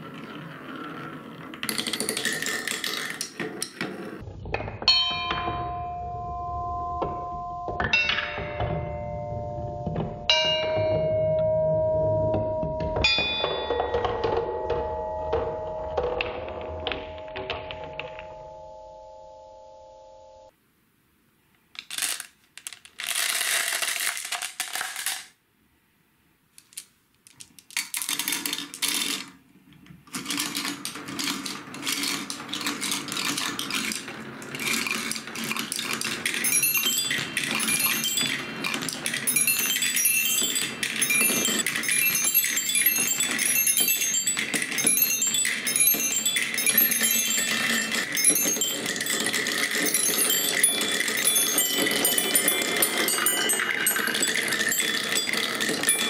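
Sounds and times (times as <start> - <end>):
marbles rolling on wooden tracks: 0.0 - 5.4, 21.7 - 25.4, 26.6 - 56.0
marbles clattering into wooden run: 0.0 - 5.6, 21.8 - 25.4, 26.6 - 56.0
bright tinkling notes: 36.3 - 56.0.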